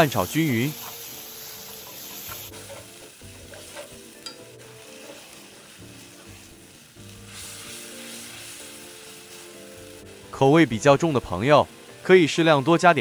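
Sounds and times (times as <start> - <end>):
faint background music: 0.0 - 13.0
noodles sizzling in a wok: 0.0 - 13.0
utensils scraping a wok: 0.3 - 9.6.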